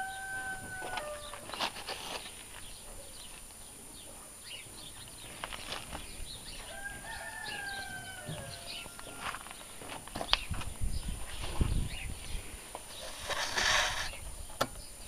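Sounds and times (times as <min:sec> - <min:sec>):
rooster crowing: 0:00.0 - 0:01.5, 0:06.6 - 0:09.4.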